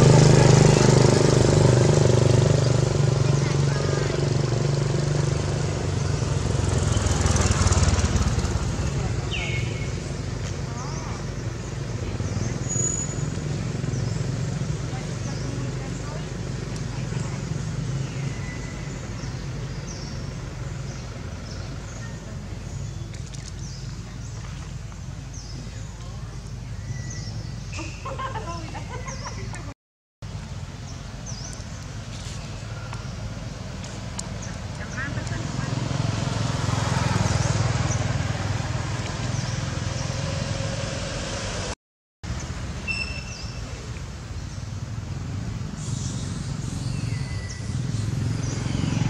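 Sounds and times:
engine rumbling: 0.0s - 49.0s
short high chirps: 42.9s - 43.6s.

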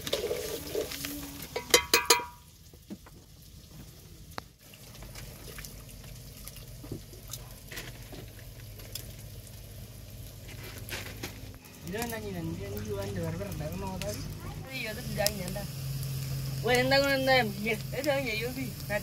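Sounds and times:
water pouring and splashing: 0.0s - 19.0s.

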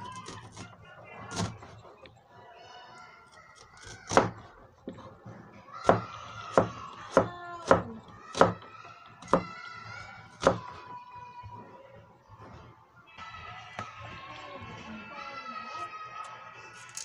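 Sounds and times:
knife chopping onion on board: 1.3s - 1.6s, 3.6s - 5.0s, 5.8s - 9.6s, 10.4s - 10.8s.

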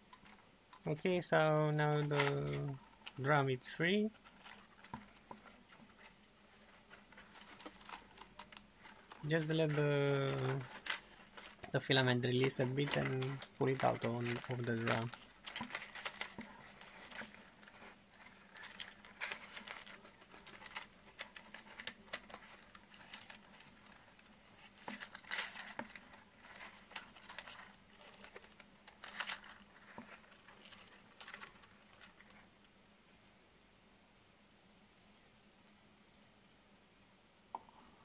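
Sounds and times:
plastic scraping and clicking: 0.0s - 0.9s, 1.6s - 3.4s, 4.0s - 32.7s
plastic filament rustling: 0.0s - 33.3s.

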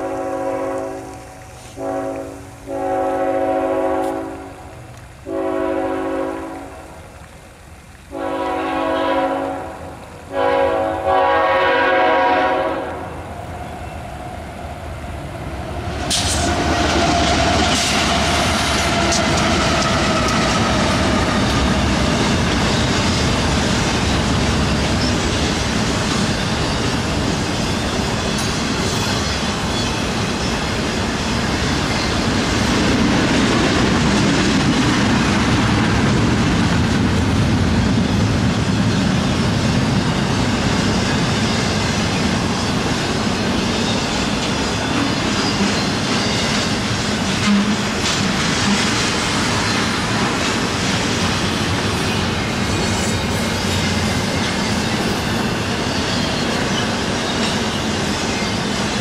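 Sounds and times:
locomotive horn blasts: 0.0s - 7.0s, 8.1s - 13.1s
train cars rolling: 0.0s - 59.0s.

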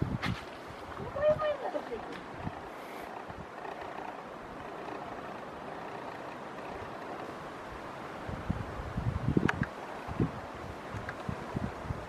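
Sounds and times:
wind buffeting the microphone: 0.0s - 12.0s.

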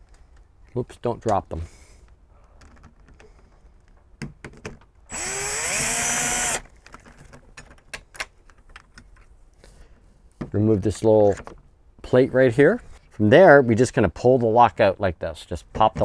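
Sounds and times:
cordless drill whining: 5.1s - 6.6s.

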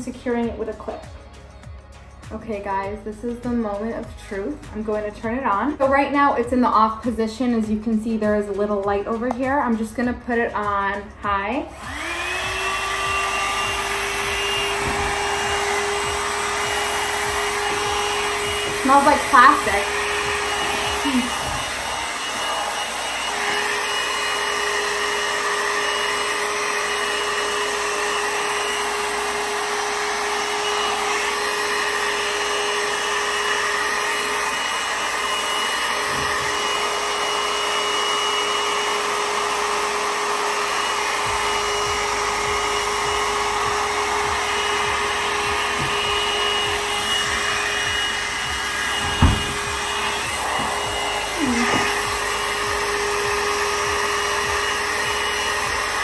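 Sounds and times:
hair dryer fan whirring: 0.0s - 56.0s
thump: 14.8s - 15.2s, 49.0s - 49.8s.

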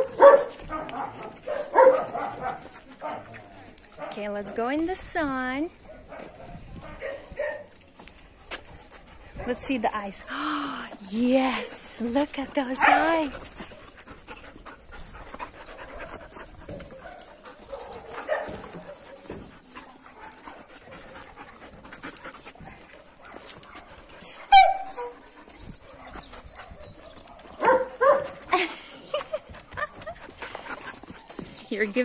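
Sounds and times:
dog yipping: 0.0s - 0.9s, 24.2s - 25.2s, 27.6s - 28.2s
dogs panting and moving: 0.0s - 32.0s
dog yelping: 24.2s - 25.2s, 27.6s - 28.2s.

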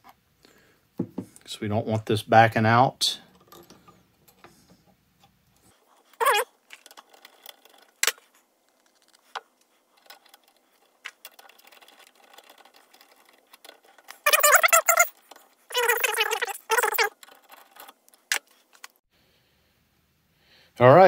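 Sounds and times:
warbling squeak: 6.2s - 6.5s, 11.8s - 17.9s.

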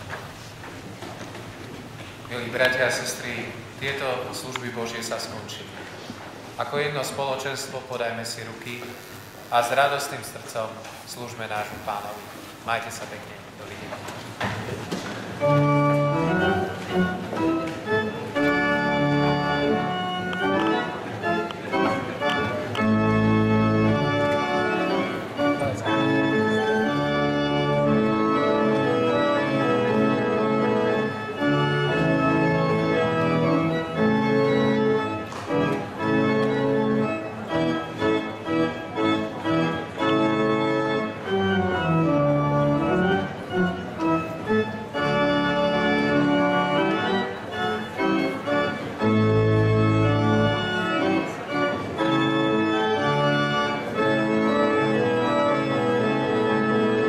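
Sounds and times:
church organ playing chords: 6.9s - 10.8s, 15.4s - 57.0s.

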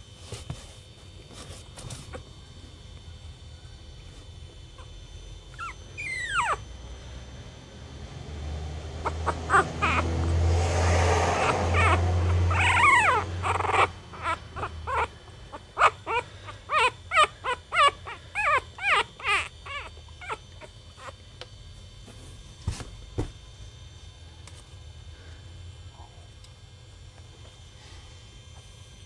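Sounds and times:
puppy whimpering squeals: 5.5s - 6.7s, 9.0s - 10.3s, 11.4s - 21.2s.

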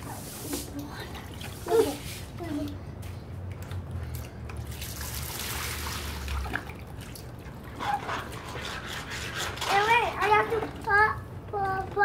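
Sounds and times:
water trickling and dripping: 0.3s - 8.8s.

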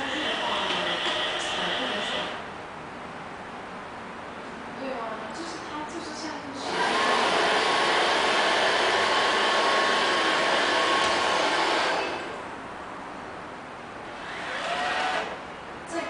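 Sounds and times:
robot vacuum cleaner whirring: 0.0s - 2.4s, 6.6s - 12.4s, 14.1s - 15.4s.

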